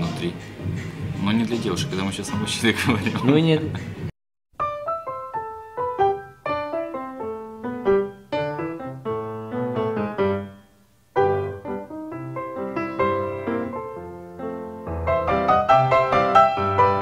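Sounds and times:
solo piano music: 0:04.6 - 0:17.0.

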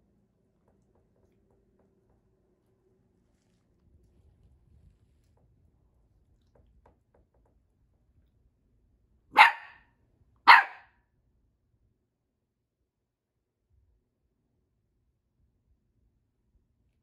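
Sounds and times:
puppy barking: 0:09.3 - 0:09.8, 0:10.5 - 0:10.9.

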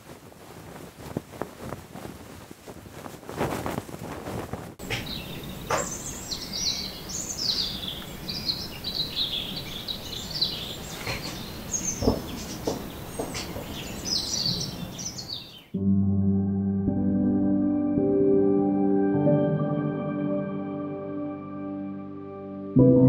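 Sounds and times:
outdoor background hiss: 0:00.0 - 0:15.7
small birds chirping: 0:04.8 - 0:15.8
knocks: 0:11.9 - 0:13.8.

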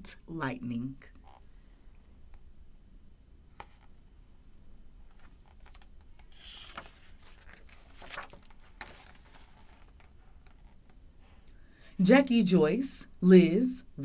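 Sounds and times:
book page turning: 0:05.1 - 0:11.0.

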